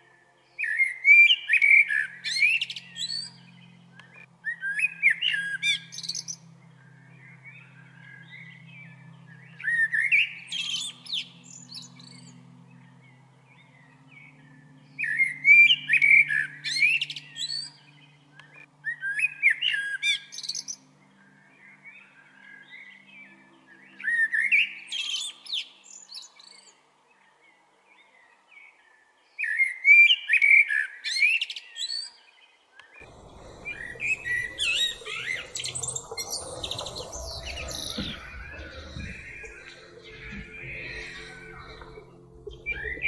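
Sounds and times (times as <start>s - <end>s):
blackbird singing: 0.6s - 20.8s, 33.0s - 43.0s.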